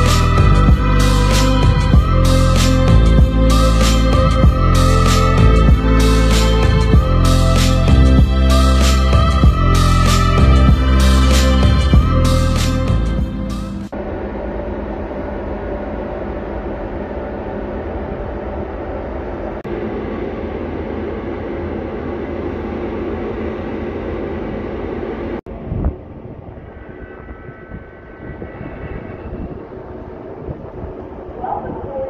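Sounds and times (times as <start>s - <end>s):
faint hum: 0.0s - 32.0s
ferry engine rumble: 0.0s - 32.0s
wind on microphone: 25.5s - 32.0s.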